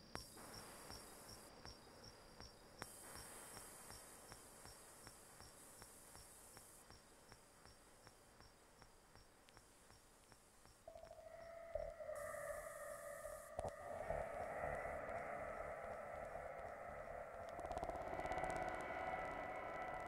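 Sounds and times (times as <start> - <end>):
synthesizer noise hiss: 9.6 - 20.0
high pulsing synthesizer tone: 10.9 - 20.0.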